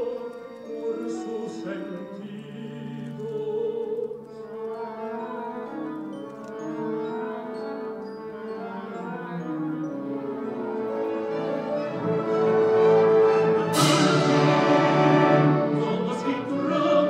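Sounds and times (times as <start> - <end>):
orchestra playing sustained chords: 4.6 - 17.0.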